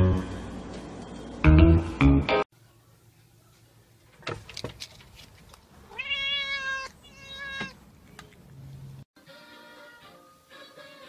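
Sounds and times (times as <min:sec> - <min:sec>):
cat meowing loudly: 0:05.9 - 0:07.8.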